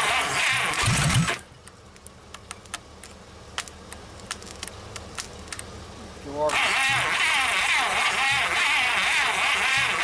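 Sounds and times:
sharp clicks and taps: 1.6s - 5.7s.

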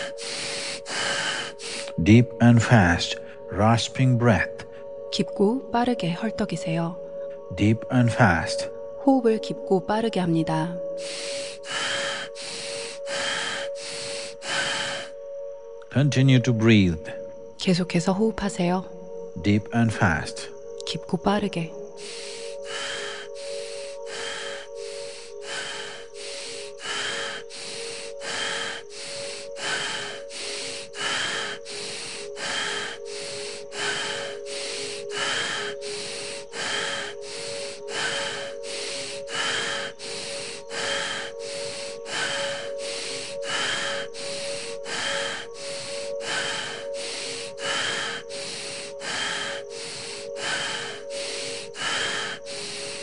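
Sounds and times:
fast rasping breaths: 0.0s - 3.8s, 10.8s - 15.4s, 21.9s - 53.0s
background music drone: 0.0s - 53.0s.

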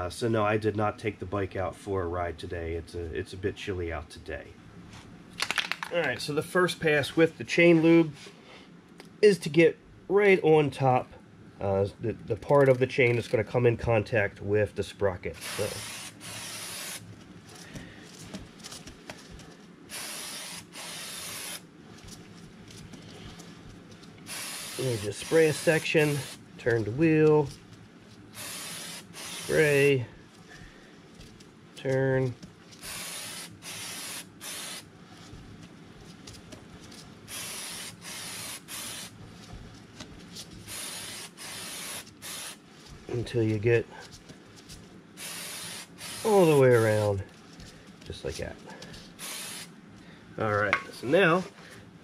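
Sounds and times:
aerosol spray hissing: 15.4s - 17.0s, 19.9s - 21.6s, 24.3s - 26.4s, 28.4s - 30.0s, 32.8s - 34.9s, 37.3s - 39.2s, 40.7s - 42.6s, 45.2s - 47.1s, 49.2s - 49.7s.

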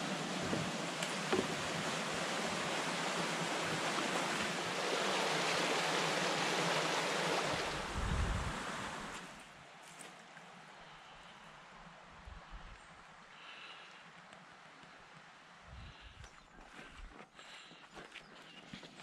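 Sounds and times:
stream flowing: 0.0s - 10.8s.

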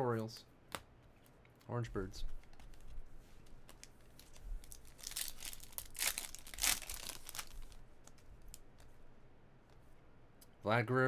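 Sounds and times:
wrapper being torn open: 4.2s - 8.2s.

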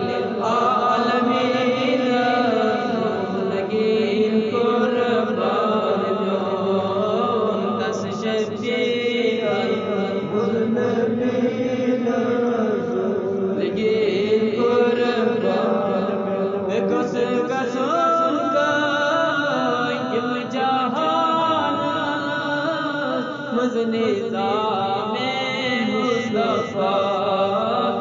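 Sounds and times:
person chanting: 0.0s - 28.0s.

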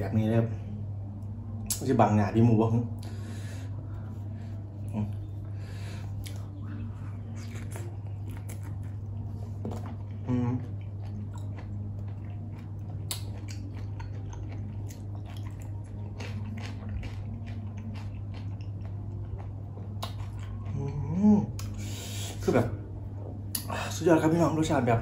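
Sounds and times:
steady low hum: 0.0s - 25.0s
wet crunchy chewing: 7.3s - 21.0s
person humming: 10.1s - 10.9s, 20.7s - 21.8s.

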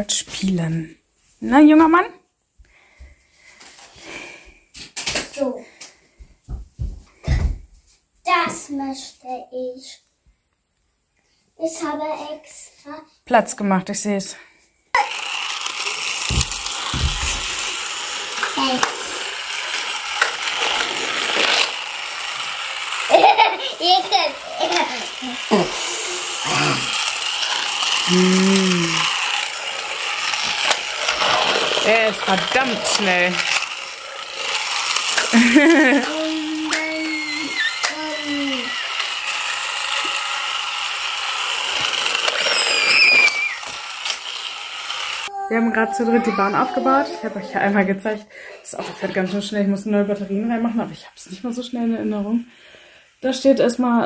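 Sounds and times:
wheels rattling over plastic track: 15.0s - 45.3s
toy motor and gears whirring: 15.0s - 48.0s.

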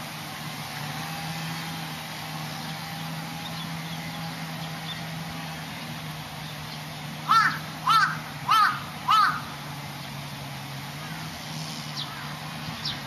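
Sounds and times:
crow cawing: 7.3s - 9.5s.

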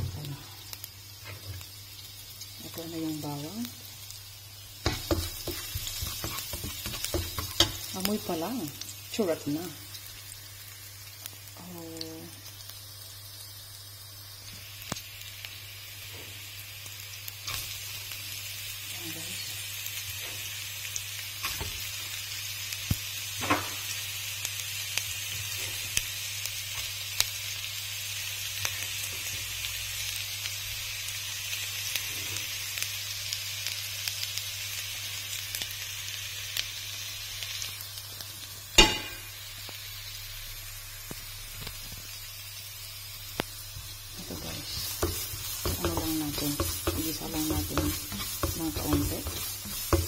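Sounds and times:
onion and garlic sizzling in oil: 0.0s - 50.0s
spatula knocking on pan: 4.8s - 7.8s, 45.0s - 50.0s
spatula scraping pan: 4.8s - 7.9s, 44.2s - 50.0s.

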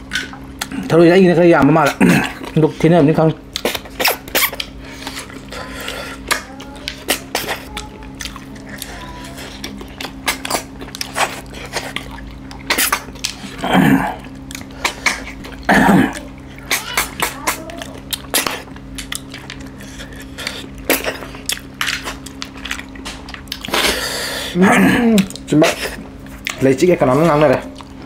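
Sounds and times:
faint low hum: 0.0s - 28.0s
lip-sucking noises: 3.5s - 15.5s, 16.1s - 21.5s.

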